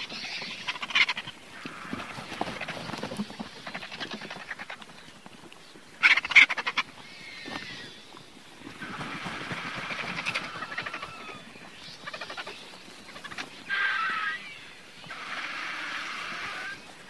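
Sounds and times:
vulture rasping calls: 0:00.0 - 0:02.8, 0:08.7 - 0:17.0.

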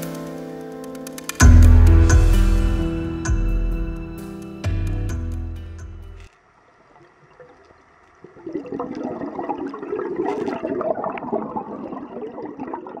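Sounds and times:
underwater air bubbling: 0:06.9 - 0:13.0.

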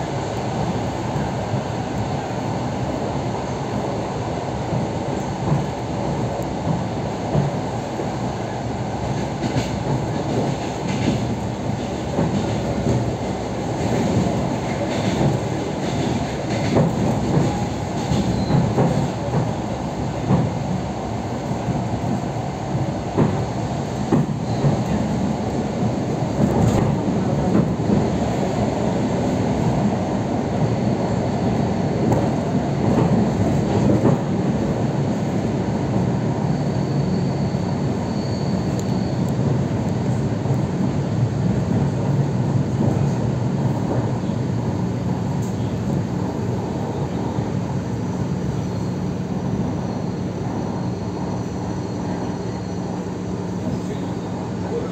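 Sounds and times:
train wheels rumbling on rails: 0:00.0 - 0:54.9
faint high squeal: 0:18.2 - 0:18.7, 0:36.4 - 0:39.4, 0:48.0 - 0:54.3.

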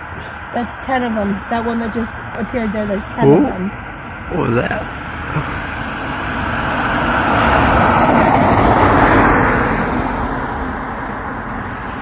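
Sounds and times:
car driving past: 0:03.3 - 0:12.0.

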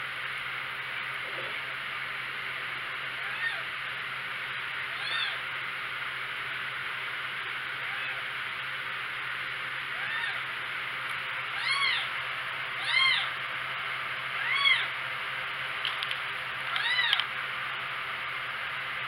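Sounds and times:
kitten meowing: 0:03.2 - 0:03.7, 0:04.9 - 0:05.4, 0:09.9 - 0:10.4, 0:11.5 - 0:12.1, 0:12.8 - 0:13.3, 0:14.4 - 0:14.9, 0:16.7 - 0:17.2.

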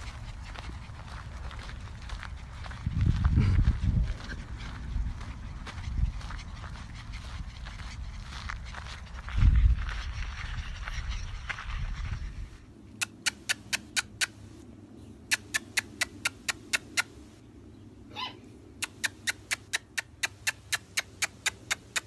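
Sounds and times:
mouth clicks and kissing noises: 0:12.9 - 0:14.5, 0:15.2 - 0:17.3, 0:18.8 - 0:22.0.

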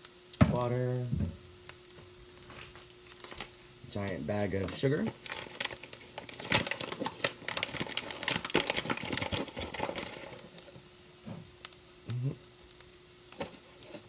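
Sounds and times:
paper bag crinkling: 0:02.5 - 0:03.6, 0:04.5 - 0:10.8.

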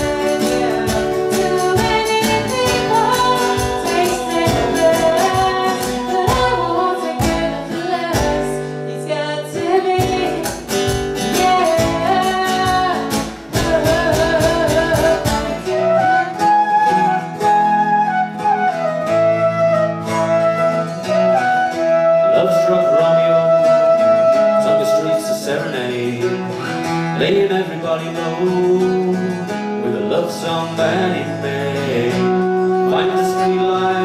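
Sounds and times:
strummed acoustic guitar: 0:00.0 - 0:34.0
flute melody: 0:13.6 - 0:27.0, 0:30.9 - 0:34.0.

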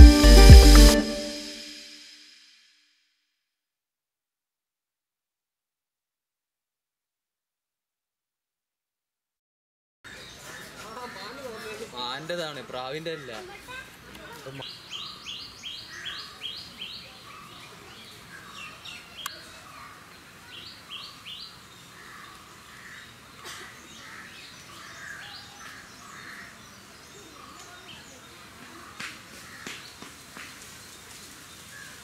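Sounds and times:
small birds chirping: 0:10.1 - 0:32.0.

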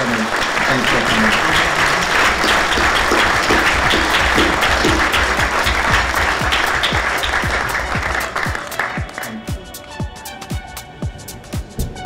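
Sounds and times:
audience applauding: 0:00.0 - 0:10.0
electronic music with kick drums: 0:03.0 - 0:12.0.

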